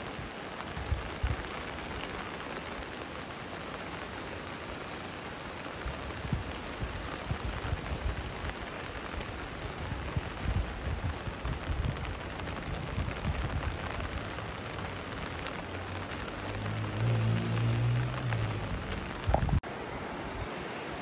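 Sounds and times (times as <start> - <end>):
heavy rain: 0.0 - 21.0
river water rushing: 0.0 - 21.0
low rumbles: 12.7 - 19.6.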